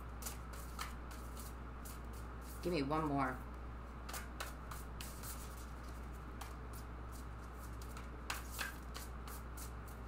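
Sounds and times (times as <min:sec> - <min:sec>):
steady low hum: 0:00.0 - 0:10.0
cards being shuffled: 0:04.0 - 0:10.0.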